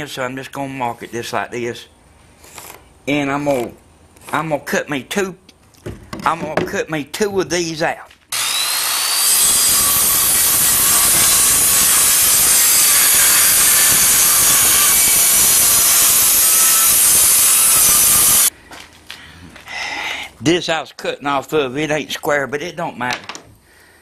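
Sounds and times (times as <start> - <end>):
circular saw cutting wood: 8.3 - 18.5.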